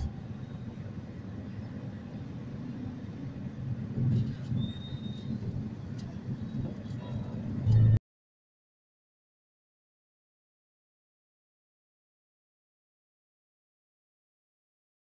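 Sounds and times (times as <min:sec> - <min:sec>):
idling engines and street traffic: 0:00.0 - 0:08.0
brief high squeal: 0:04.4 - 0:05.4.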